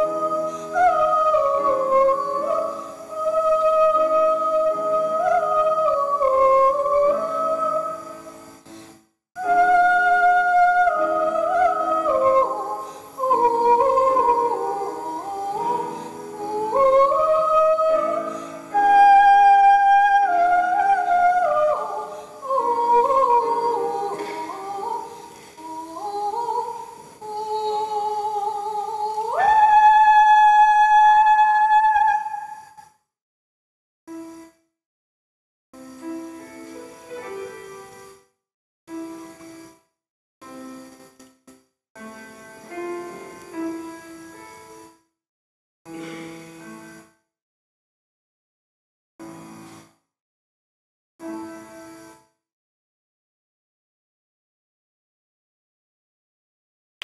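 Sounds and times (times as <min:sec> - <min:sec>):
woman singing: 0:00.0 - 0:08.2, 0:09.4 - 0:32.6
grand piano accompaniment: 0:00.0 - 0:27.2, 0:35.9 - 0:38.2, 0:42.0 - 0:44.9, 0:46.0 - 0:47.0.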